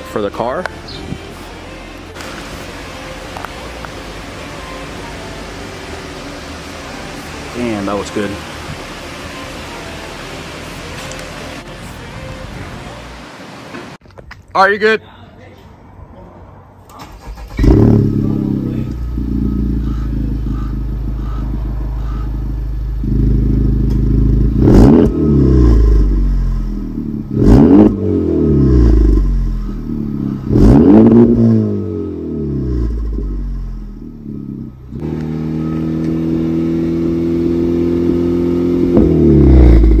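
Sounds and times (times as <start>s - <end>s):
car engine idling: 0.0s - 12.7s, 17.0s - 40.0s
car engine revving: 17.0s - 40.0s.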